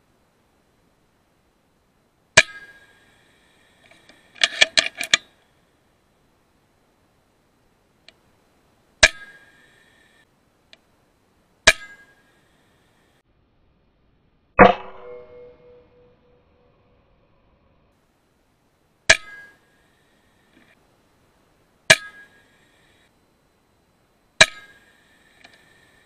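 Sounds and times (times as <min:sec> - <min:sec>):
rifle action metallic clicks: 0:03.8 - 0:05.3
air rifle shots: 0:14.6 - 0:15.4.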